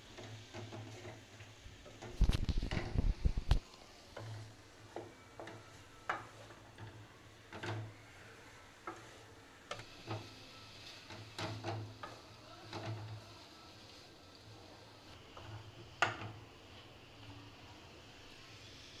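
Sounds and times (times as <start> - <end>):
wooden spatula scraping metal pan: 8.8 - 13.4.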